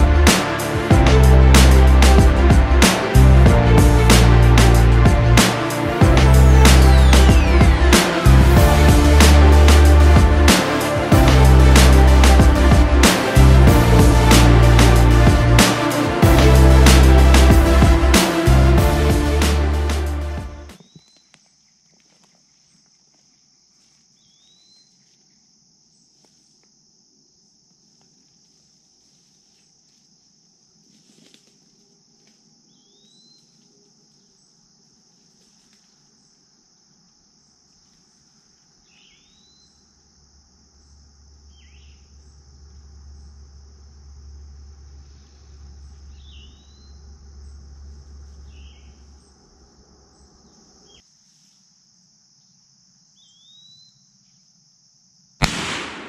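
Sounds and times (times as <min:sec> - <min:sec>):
high-pitched insect chorus: 0:00.0 - 0:55.4
low rumble: 0:00.9 - 0:05.4, 0:06.0 - 0:10.5, 0:11.1 - 0:15.6.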